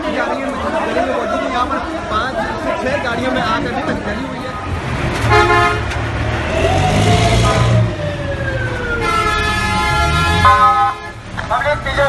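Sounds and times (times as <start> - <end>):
fire truck horn blast: 5.2 - 6.0, 7.2 - 7.9, 9.0 - 11.2
siren sliding down in pitch: 6.4 - 10.7.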